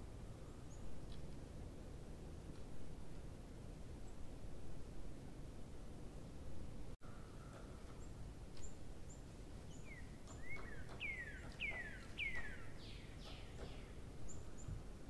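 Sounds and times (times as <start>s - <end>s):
steady low background noise: 0.0s - 15.0s
bird singing whistled notes: 8.0s - 14.8s.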